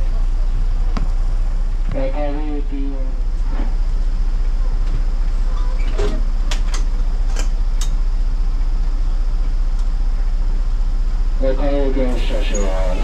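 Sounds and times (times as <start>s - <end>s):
bus engine idling: 0.0s - 13.0s.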